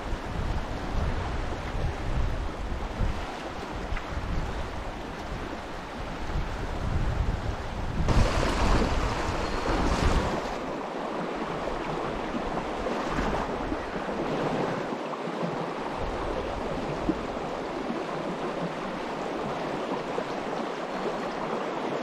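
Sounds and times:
wind buffeting microphone: 0.0 - 14.8
river water rushing: 8.1 - 22.0.

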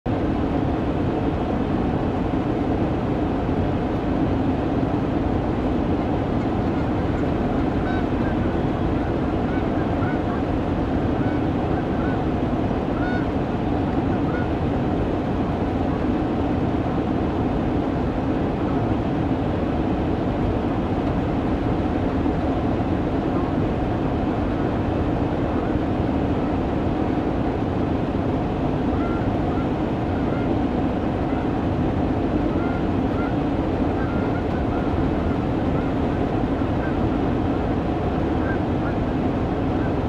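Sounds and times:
loud steady rumble: 0.1 - 40.0
geese honking faintly: 6.4 - 13.4, 14.0 - 14.6, 28.8 - 31.6, 32.2 - 37.6, 38.2 - 40.0.

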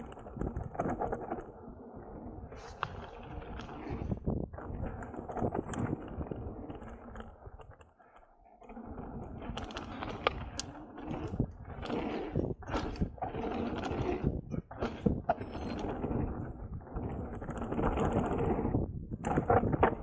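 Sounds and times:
tyres rolling over dirt and gravel: 8.7 - 20.0.

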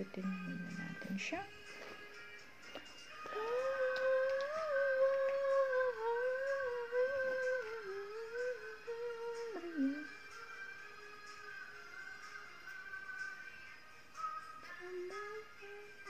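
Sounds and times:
woman humming: 3.2 - 10.2.

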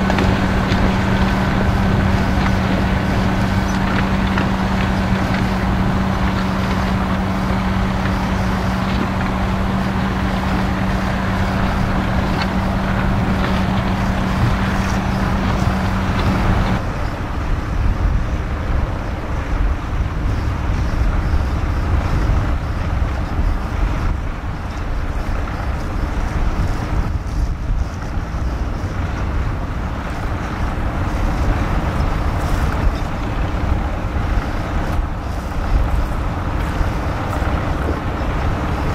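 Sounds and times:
tractor diesel engine under load: 0.0 - 38.9
wind buffeting microphone: 0.0 - 38.9.

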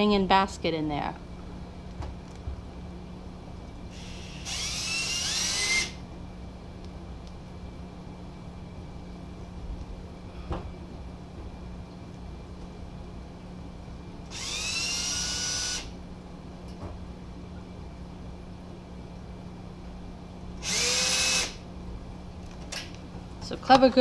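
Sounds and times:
electric drill whining: 3.9 - 6.0, 14.3 - 15.9, 20.6 - 21.6.

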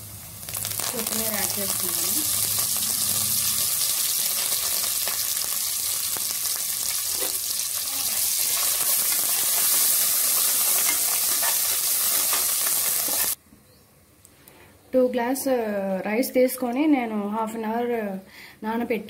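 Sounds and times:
food sizzling in hot oil: 0.0 - 13.4
spoon scraping a pan: 8.4 - 13.4.

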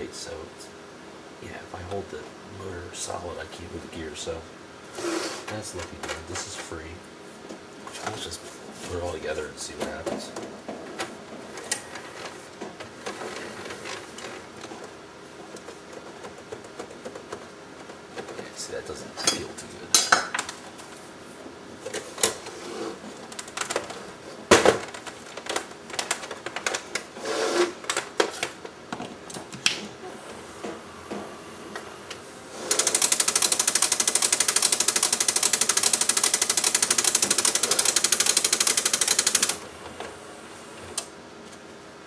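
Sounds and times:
mechanism rattling fast: 32.6 - 39.6.

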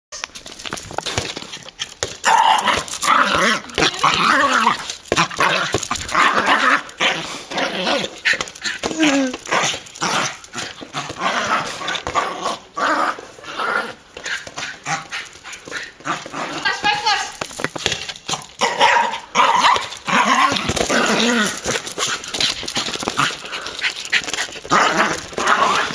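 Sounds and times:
small dog growling and barking: 2.2 - 14.0, 18.6 - 22.2, 23.1 - 25.9.

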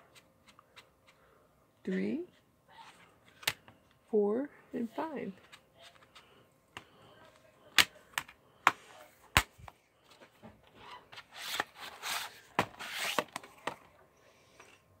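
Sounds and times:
plastic disc case clicks: 3.4 - 3.7.

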